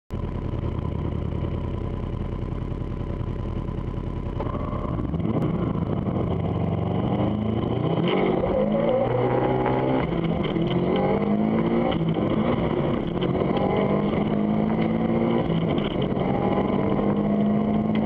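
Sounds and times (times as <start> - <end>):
car engine revving: 0.2 - 18.0.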